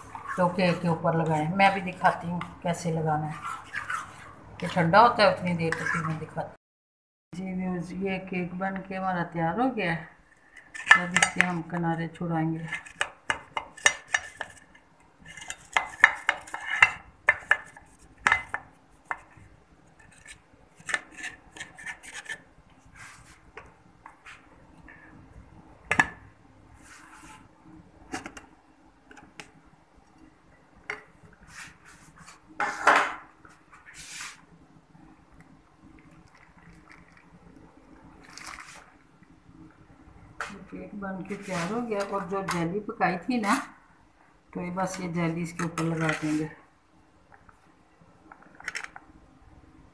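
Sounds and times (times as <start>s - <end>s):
metal knife scraping metal pan: 15.2s - 17.6s.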